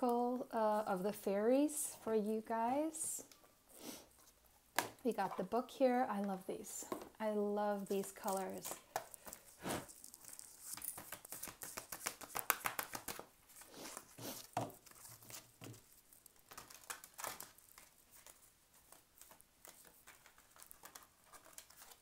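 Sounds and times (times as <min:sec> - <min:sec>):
cards being shuffled: 0:07.8 - 0:22.0.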